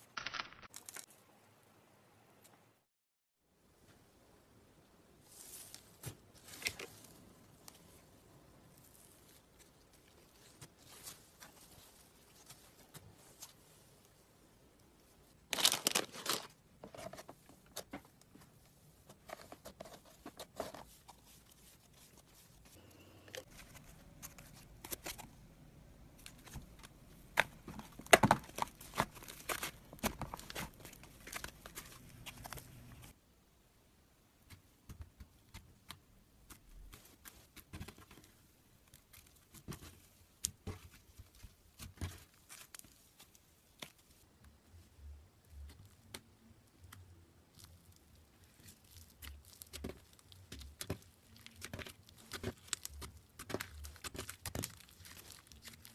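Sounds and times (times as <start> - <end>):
slime crackling and popping: 47.5 - 55.9.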